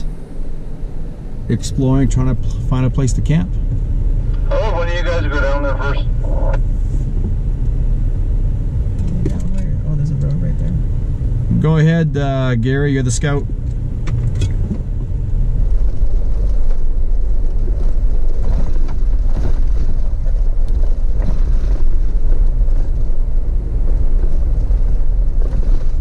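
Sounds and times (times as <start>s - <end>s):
vehicle rumble on gravel road: 0.0s - 26.0s
gravel ticks: 12.6s - 26.0s.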